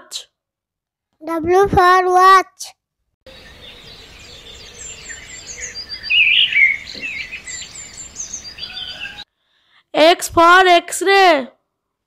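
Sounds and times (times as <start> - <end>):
birds chirping and twittering: 3.3 - 9.3.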